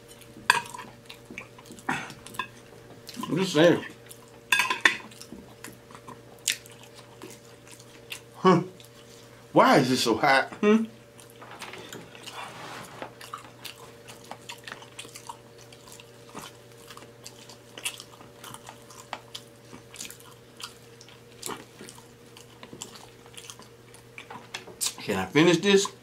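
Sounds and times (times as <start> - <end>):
man chewing with wet smacks: 0.0 - 9.5, 10.8 - 12.4, 13.1 - 25.1
faint steady hum: 0.0 - 26.0.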